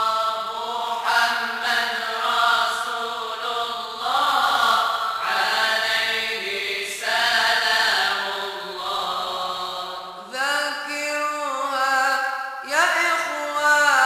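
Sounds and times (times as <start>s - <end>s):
voices chanting together: 0.0s - 14.0s.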